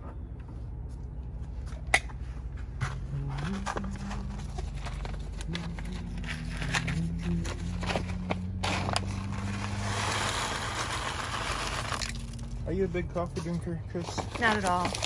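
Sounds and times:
coffee beans rattling into a cup: 8.8s - 12.5s.

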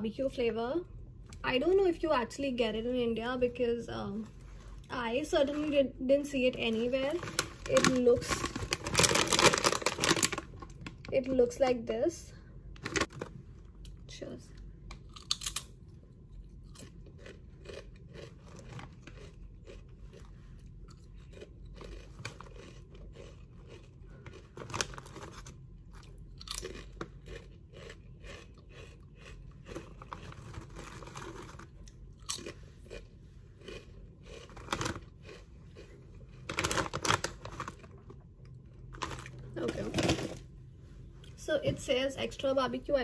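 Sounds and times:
foil bag crackling: 6.7s - 11.1s, 12.8s - 13.3s, 36.4s - 38.0s
chewing crisp chips: 15.0s - 40.3s.

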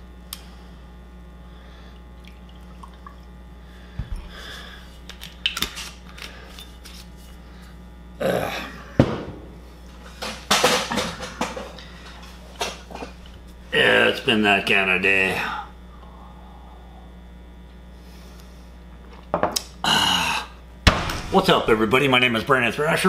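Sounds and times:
low electrical hum: 0.0s - 23.0s
objects knocking when set down: 10.1s - 11.8s.

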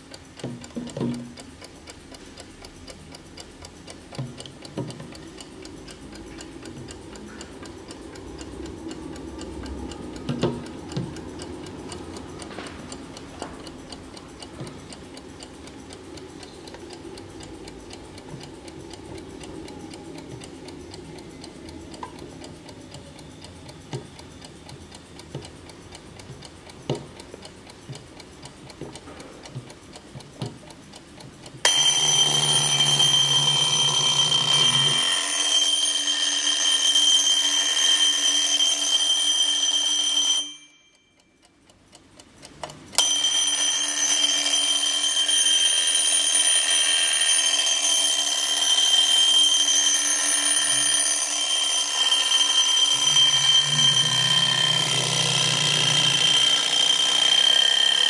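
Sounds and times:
alarm clock ticking: 0.0s - 58.0s
alarm clock ringing: 31.6s - 41.6s, 43.0s - 58.0s.

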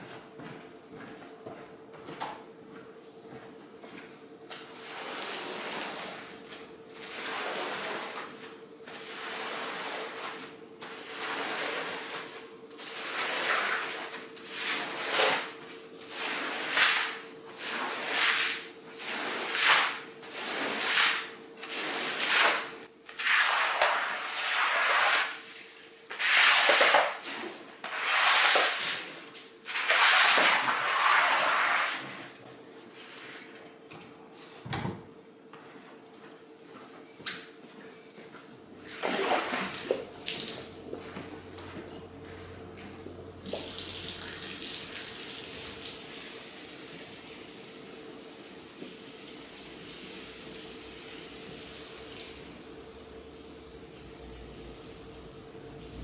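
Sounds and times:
cleaning tool scraping carpet: 8.9s - 15.5s, 26.1s - 29.1s, 29.7s - 32.2s.

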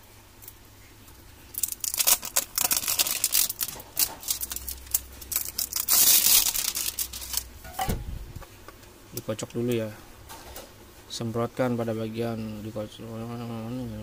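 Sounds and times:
plastic wrap crinkling and tearing: 1.5s - 7.6s.

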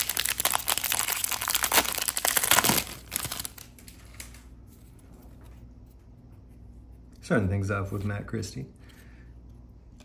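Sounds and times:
wrapper crinkling: 0.0s - 4.4s.

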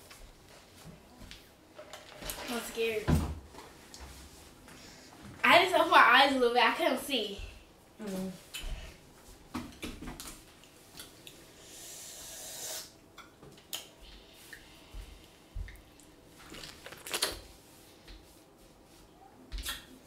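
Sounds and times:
short hiss: 11.6s - 12.9s.

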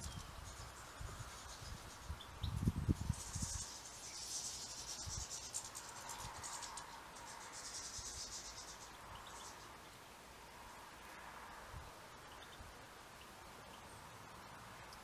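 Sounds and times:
finches twittering: 0.0s - 10.0s.

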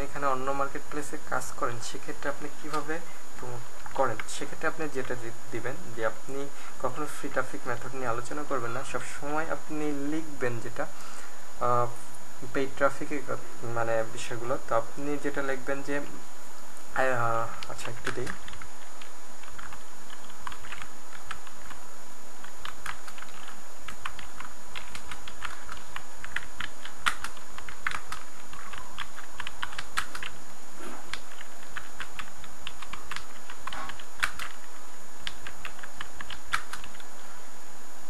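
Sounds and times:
keyboard typing: 17.6s - 21.8s, 22.4s - 30.4s, 31.1s - 37.1s.

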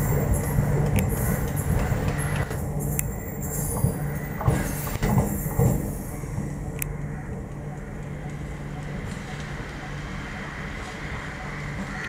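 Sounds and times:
train running hum: 0.0s - 12.0s
wheels clicking over rails: 0.0s - 12.0s.

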